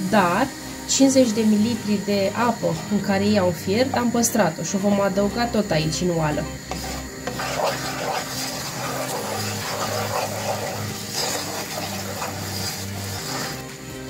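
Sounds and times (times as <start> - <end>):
wooden spoon stirring in a pan: 6.6 - 14.0.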